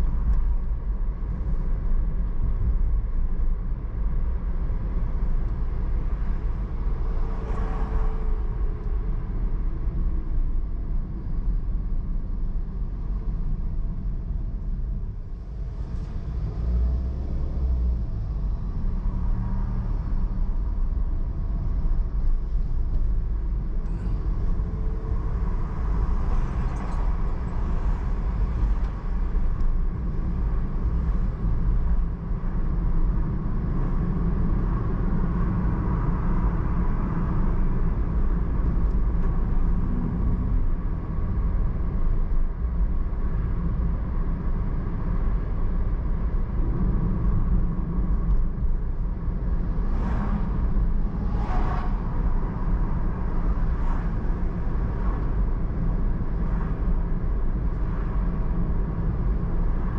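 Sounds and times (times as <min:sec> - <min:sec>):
car driving rumble: 0:00.0 - 0:59.9.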